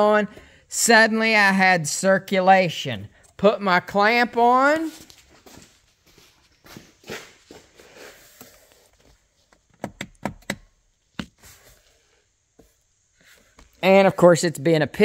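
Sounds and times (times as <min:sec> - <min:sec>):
soft shuffling movement: 0:04.4 - 0:09.7, 0:11.3 - 0:13.8
sharp clicks and knocks: 0:09.5 - 0:11.4.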